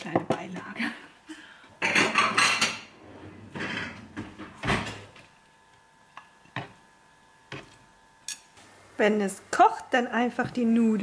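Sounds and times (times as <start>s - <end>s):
dishes rattling: 1.8s - 4.4s.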